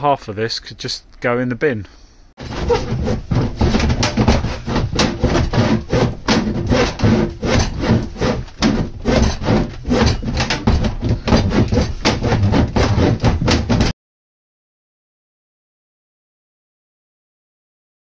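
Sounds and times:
hand saw rasping through plastic: 2.4s - 13.9s.

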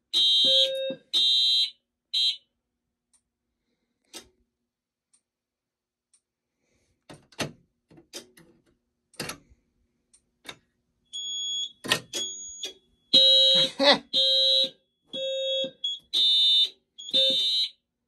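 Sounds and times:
fire alarm pull station clicks: 11.2s - 12.8s, 15.2s - 17.7s
high electronic alarm beep: 11.2s - 17.7s.

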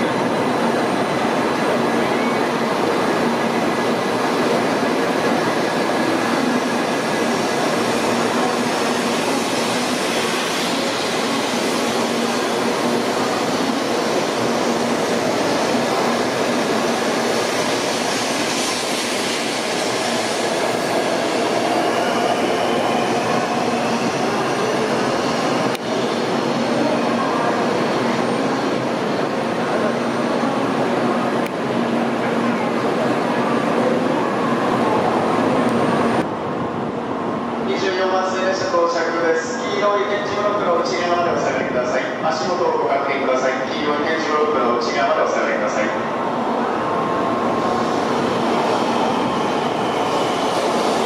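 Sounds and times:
train rumbling past: 0.0s - 51.0s.

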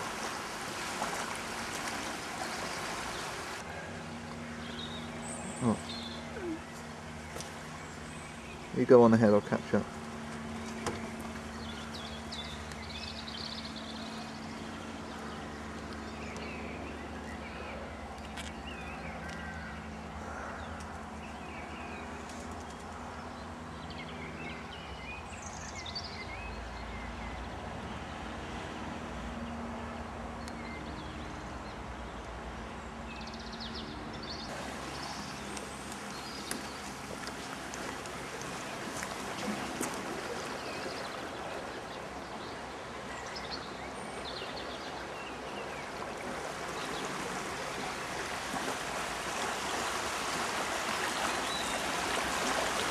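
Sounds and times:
river rushing: 0.0s - 3.8s, 34.5s - 52.9s
small birds chirping: 2.2s - 27.6s, 33.0s - 47.1s.

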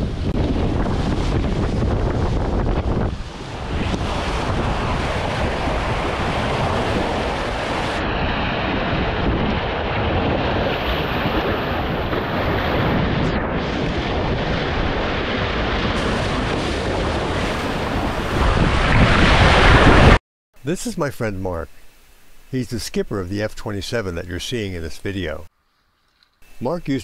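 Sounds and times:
wind noise on microphone: 0.0s - 20.2s
water rushing past hull: 0.4s - 8.0s, 15.3s - 20.2s.

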